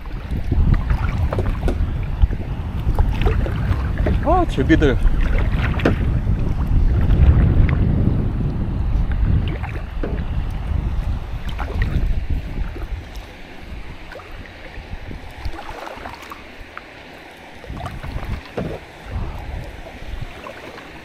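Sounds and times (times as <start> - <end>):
paddle strokes splashing in water: 0.0 - 8.0, 8.9 - 21.0
river current washing: 0.0 - 21.0
wind buffeting microphone: 0.0 - 21.0.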